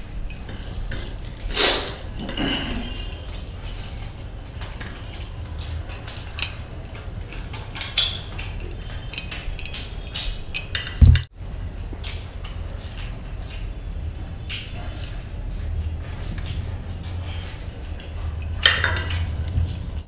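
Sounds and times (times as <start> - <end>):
rings jangling against metal tray: 0.0 - 11.3, 11.9 - 20.0
chewing and mouth sounds: 11.8 - 19.9.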